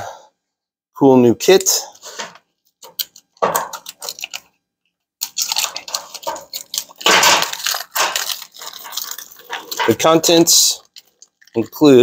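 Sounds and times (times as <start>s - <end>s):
plastic packaging crackling: 2.8s - 4.6s, 5.2s - 12.0s
small metal parts clinking: 5.2s - 11.8s.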